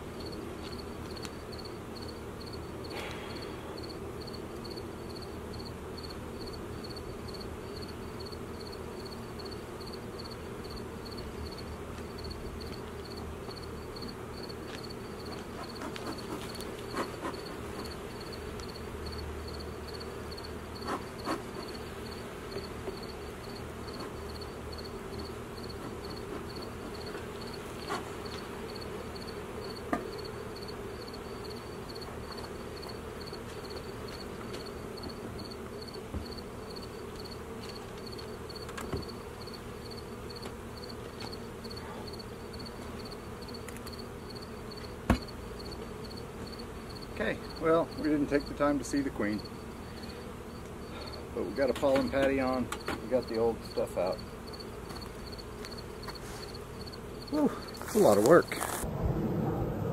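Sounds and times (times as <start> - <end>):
honeybee colony buzzing: 0.0 - 59.9
sharp knocks on hive boxes: 22.5 - 31.2, 31.9 - 47.1, 50.6 - 53.2.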